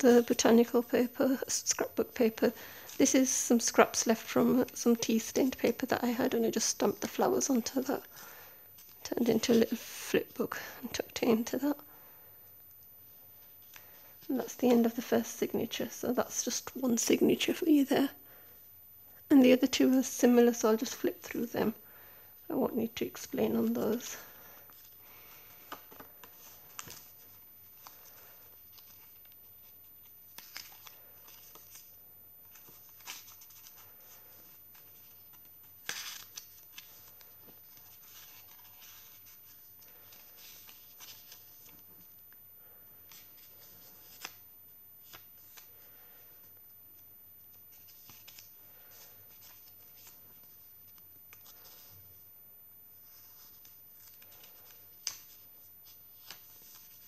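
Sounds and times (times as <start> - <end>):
paper pages rustling: 23.0 - 42.2, 42.9 - 52.1, 53.0 - 57.0.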